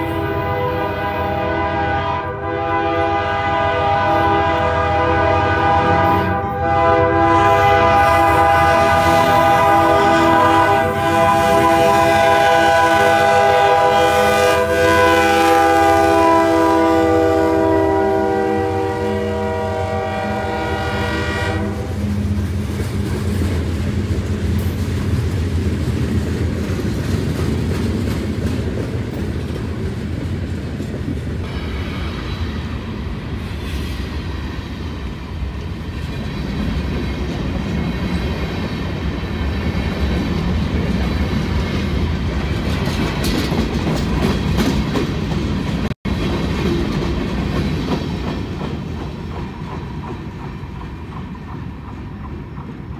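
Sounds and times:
locomotive air horn blasts: 0.0s - 22.1s
wheels clacking on rail joints: 22.0s - 32.4s, 35.6s - 52.9s.

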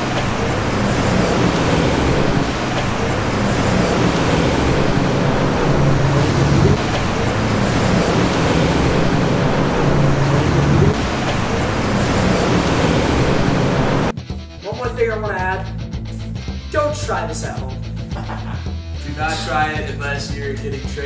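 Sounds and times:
road traffic noise: 0.0s - 14.2s.

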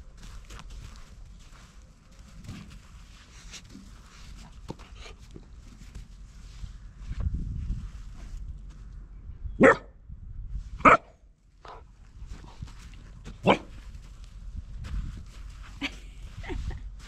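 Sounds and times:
puppy barking: 9.6s - 9.9s, 10.8s - 11.1s, 13.4s - 13.7s.

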